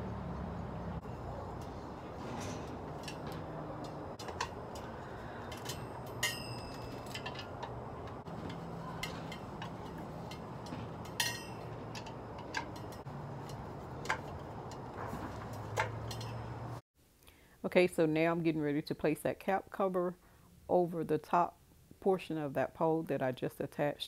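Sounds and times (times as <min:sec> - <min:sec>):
ringing metal clink: 0:02.4 - 0:13.0, 0:16.0 - 0:16.6
screwdriver clicking on metal: 0:02.9 - 0:14.8.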